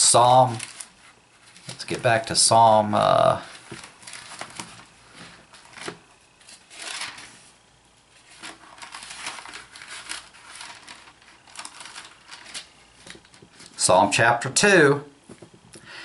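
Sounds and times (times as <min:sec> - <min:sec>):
book pages rustling: 0:00.2 - 0:02.2, 0:03.4 - 0:13.8.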